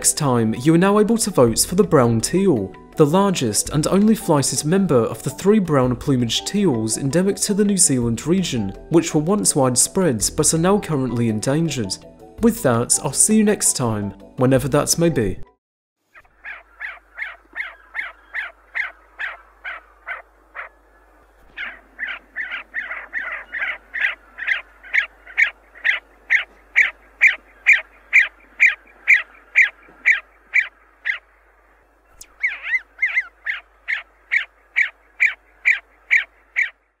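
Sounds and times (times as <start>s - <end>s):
bird calling in sharp notes: 16.1s - 37.0s.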